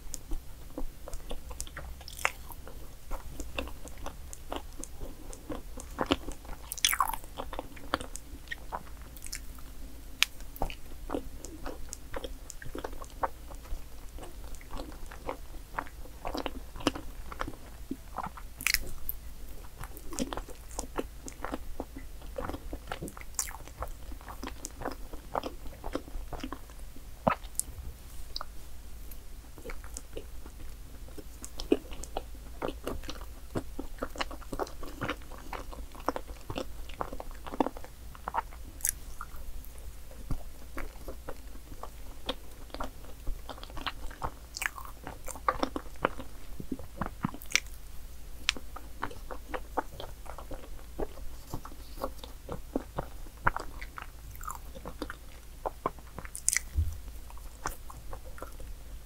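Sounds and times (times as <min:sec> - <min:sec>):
person chewing with mouth smacks: 0:00.1 - 0:09.6, 0:10.2 - 0:26.7, 0:29.6 - 0:47.8, 0:48.4 - 0:58.8.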